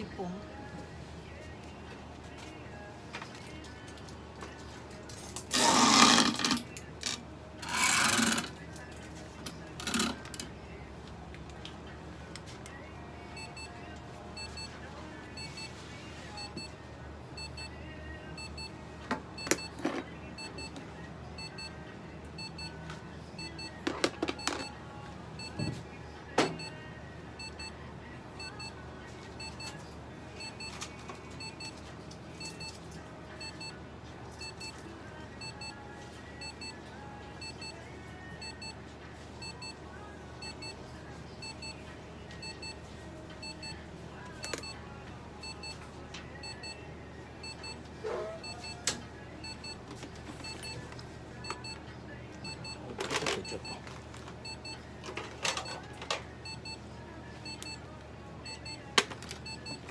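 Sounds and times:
faint electronic beeping: 50.4 - 55.8, 56.4 - 59.9.

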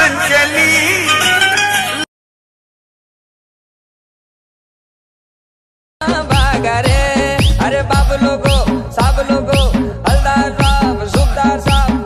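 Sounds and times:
song with instrumental backing: 0.0 - 2.1, 6.0 - 12.0.

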